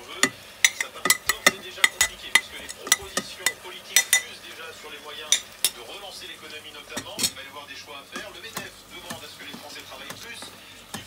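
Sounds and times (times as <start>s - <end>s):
metal spoon clinking on pot: 0.1s - 4.4s, 5.3s - 5.8s.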